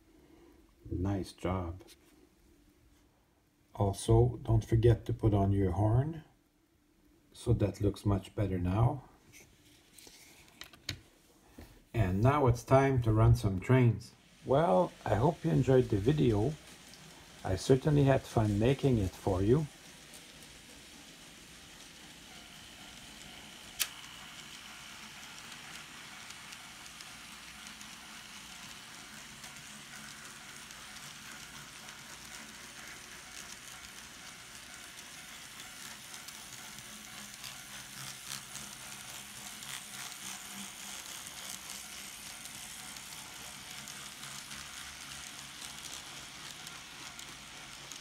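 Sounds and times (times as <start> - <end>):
model train rolling hiss: 12.6 - 48.0.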